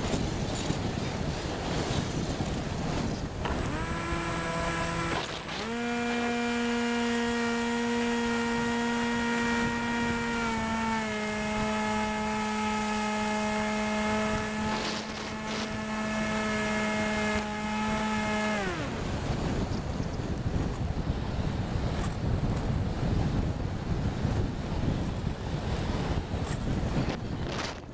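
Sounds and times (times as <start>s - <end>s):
wind rushing past microphone: 0.0s - 27.9s
model airplane motor whining: 2.2s - 22.2s.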